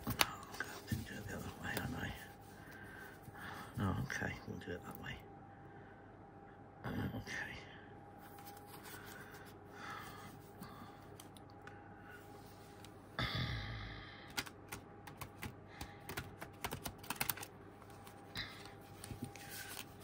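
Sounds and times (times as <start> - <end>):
cards shuffling clicks and flicks: 0.0 - 2.0, 14.3 - 20.0
cards rustling: 0.0 - 3.0, 14.4 - 20.0.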